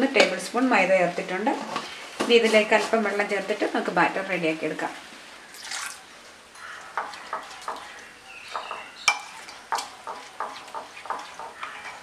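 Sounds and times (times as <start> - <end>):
spoon stirring batter in bowl: 6.6 - 12.0.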